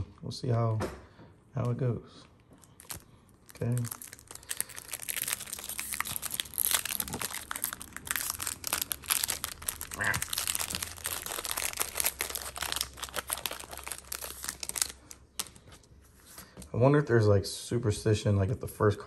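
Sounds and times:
foil wrapper crinkling and tearing: 2.6 - 15.9.

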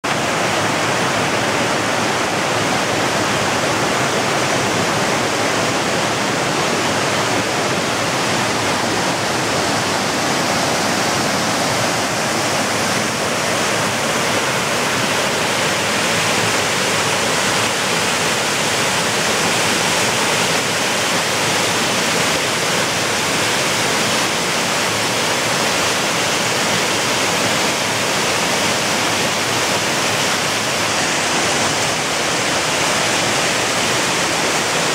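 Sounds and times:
water rushing over rocks: 0.0 - 34.9.

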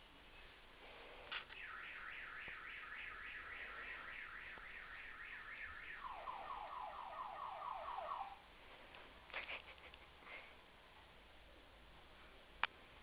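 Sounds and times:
electronic siren sweep: 1.5 - 8.4.

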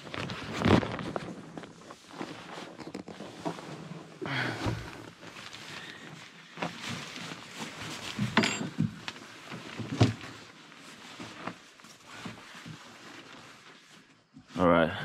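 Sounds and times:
tent fabric rustling: 0.0 - 14.8.

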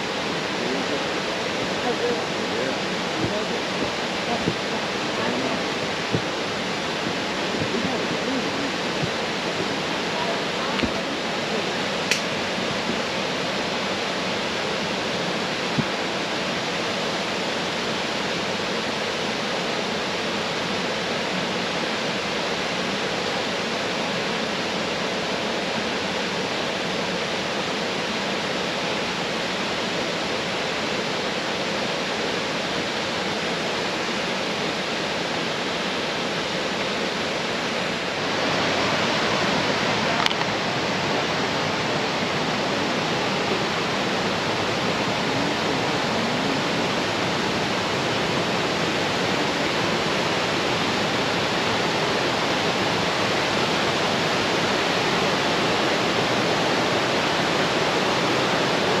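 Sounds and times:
rushing water: 0.0 - 59.0
brief click: 12.1 - 12.3.

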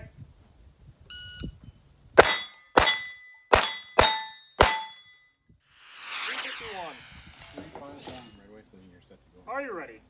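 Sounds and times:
pistol shots: 2.2 - 4.8
steel target ringing: 2.2 - 5.2.

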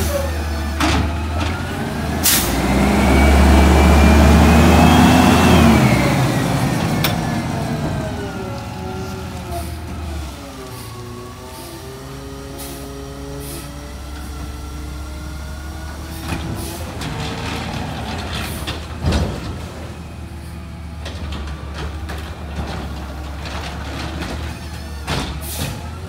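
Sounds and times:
garbage truck engine revving: 0.0 - 26.0
cart knocks and bangs: 16.3 - 20.0, 21.0 - 25.9.

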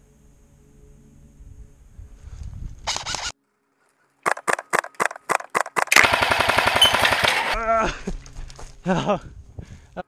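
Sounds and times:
airsoft rifle shots: 4.2 - 7.6.

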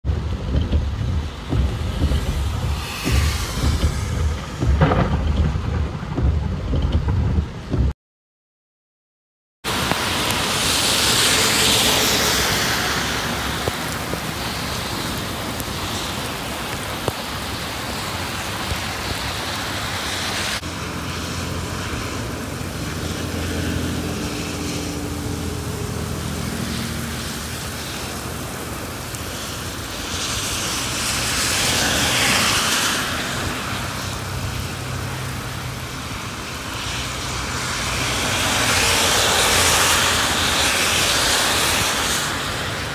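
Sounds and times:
tyres hissing on wet road: 0.1 - 6.4, 9.7 - 42.9
truck engine droning: 0.1 - 7.9.

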